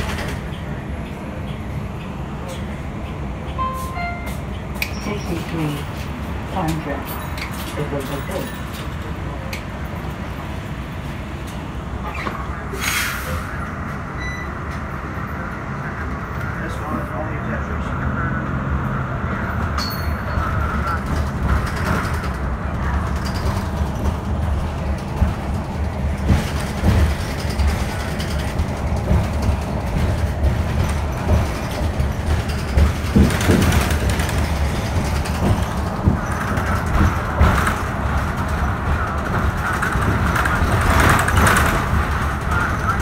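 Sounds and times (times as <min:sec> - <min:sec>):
bus engine and road rumble: 0:00.0 - 0:43.0
body knocks and rattles: 0:23.0 - 0:42.2.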